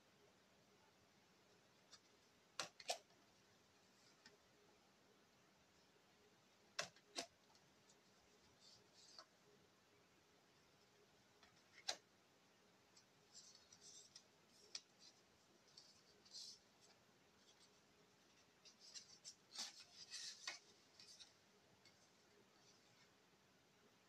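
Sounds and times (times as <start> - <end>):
cards rustling and clicking: 12.9 - 22.4.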